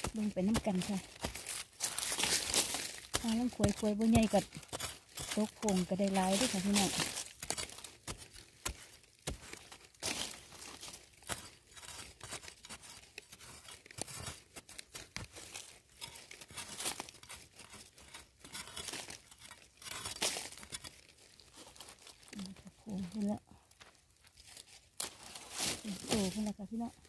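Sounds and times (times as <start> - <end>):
metal blade chopping into soil: 0.0 - 21.0.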